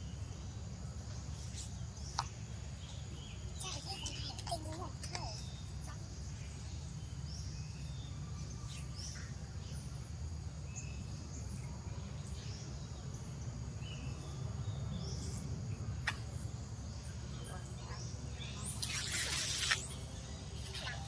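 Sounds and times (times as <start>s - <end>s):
bird chirps: 10.7s - 21.0s.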